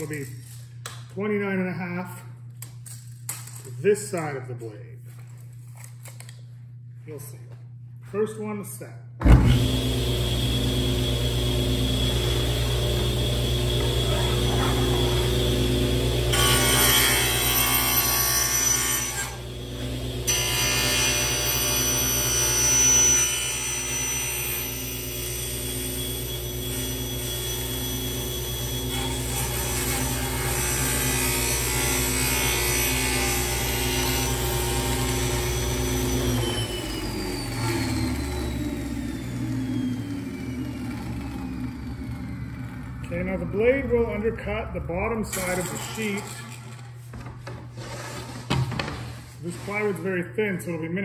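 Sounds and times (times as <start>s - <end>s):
table saw cutting plywood: 9.2s - 50.0s
saw blade spinning down: 9.5s - 16.9s, 34.2s - 47.0s.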